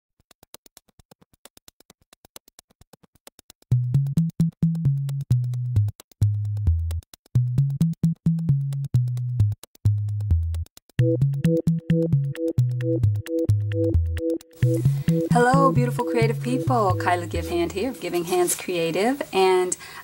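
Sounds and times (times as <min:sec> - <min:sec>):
fast ticking beat: 0:00.2 - 0:18.7
low synthesizer bass line: 0:03.9 - 0:17.7.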